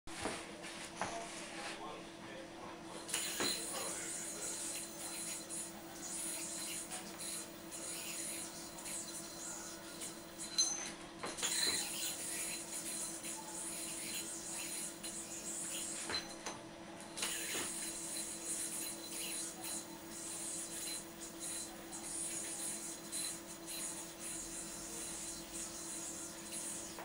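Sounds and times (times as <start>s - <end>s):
yoyo string rubbing and hissing: 3.0s - 10.7s, 11.4s - 16.5s, 17.1s - 27.0s.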